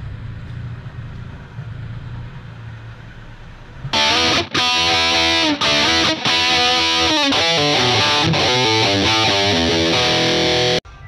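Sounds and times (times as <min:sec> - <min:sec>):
heavy metal electric guitar riff: 0:03.9 - 0:10.8.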